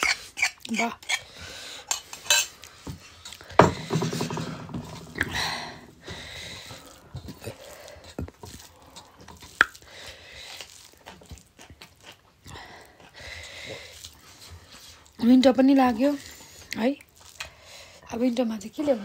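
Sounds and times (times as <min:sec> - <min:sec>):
chewing and mouth noises: 0:06.7 - 0:15.2, 0:16.0 - 0:18.0.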